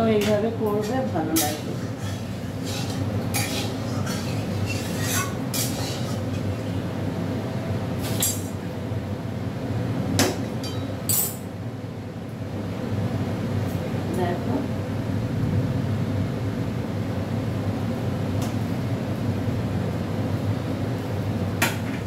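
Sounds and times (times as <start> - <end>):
tongs clinking against steel pans: 0.0 - 6.6, 10.6 - 11.5
steady low hum: 0.0 - 22.0.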